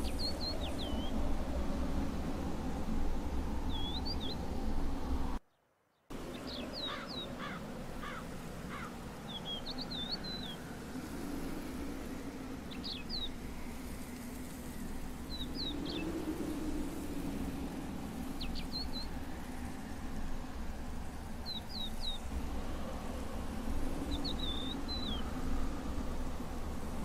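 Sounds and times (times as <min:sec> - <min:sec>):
outdoor background noise: 0:00.0 - 0:27.0
small birds chirping: 0:03.7 - 0:04.5, 0:06.0 - 0:11.2, 0:12.7 - 0:17.0, 0:21.3 - 0:22.3, 0:24.0 - 0:25.4.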